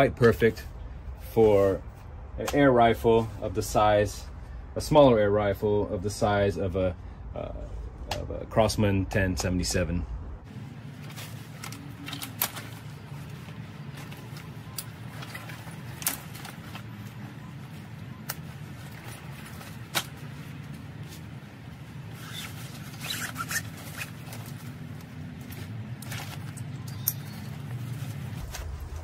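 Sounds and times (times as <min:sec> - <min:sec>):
steady low hum: 0:00.0 - 0:29.0
fabric and straps rustling: 0:10.4 - 0:29.0
crackly scraping: 0:18.6 - 0:26.8.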